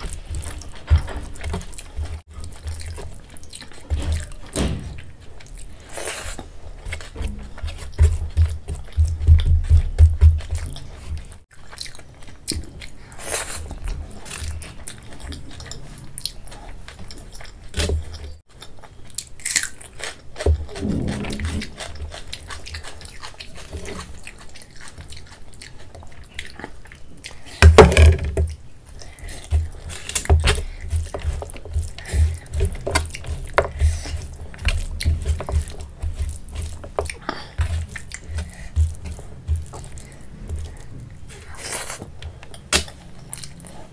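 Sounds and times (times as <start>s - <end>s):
person chewing food: 0.0s - 43.9s
fingers squishing food: 28.5s - 43.7s.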